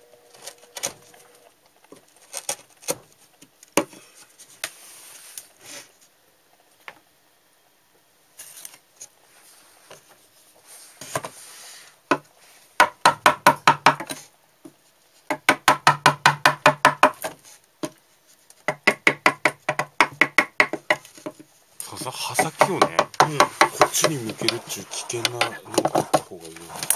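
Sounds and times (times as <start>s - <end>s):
chisel knocking into wood: 18.7s - 21.0s, 22.3s - 26.3s.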